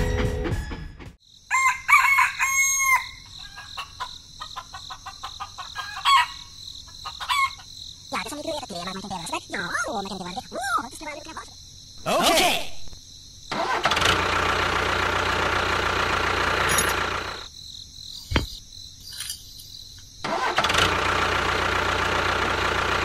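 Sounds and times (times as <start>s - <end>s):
rooster crowing: 1.5s - 4.2s, 5.0s - 7.7s
chickens clucking: 3.3s - 10.4s.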